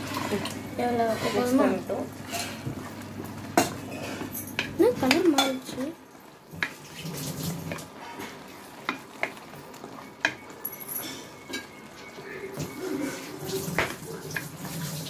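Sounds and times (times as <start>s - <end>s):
wooden spoon stirring thick gravy: 0.0s - 14.9s
faint sizzle: 0.0s - 15.0s
spoon knocking on pot: 10.2s - 10.4s.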